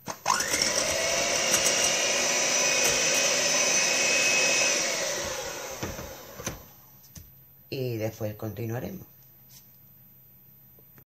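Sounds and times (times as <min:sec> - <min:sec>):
electric hand mixer whipping: 0:00.1 - 0:06.7.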